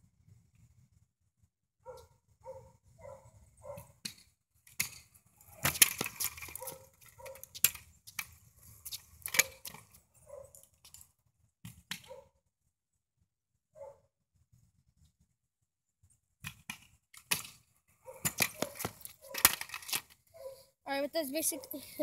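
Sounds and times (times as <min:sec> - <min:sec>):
kick scooter rolling on concrete: 0:01.9 - 0:12.2, 0:16.5 - 0:22.0.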